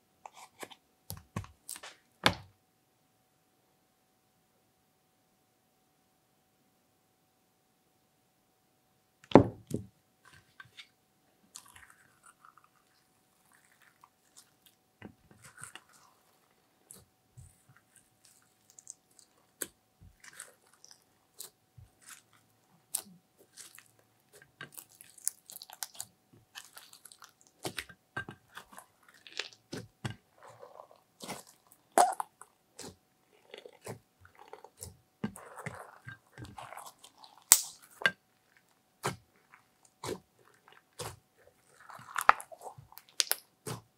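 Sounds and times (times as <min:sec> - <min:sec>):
slime squishing wet sticky pops: 0:33.8 - 0:38.2.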